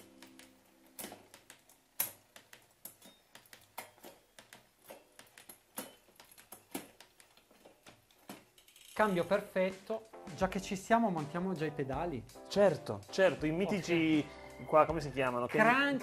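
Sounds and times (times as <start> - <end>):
bike drivetrain clicking: 0.0 - 10.0
chain moving across cogs: 0.1 - 9.5.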